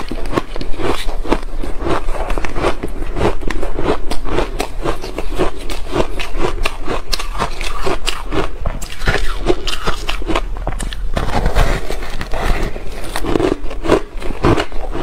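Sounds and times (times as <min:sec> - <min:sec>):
chewing ice: 0:00.0 - 0:15.0
slushy ice crunching: 0:08.8 - 0:15.0.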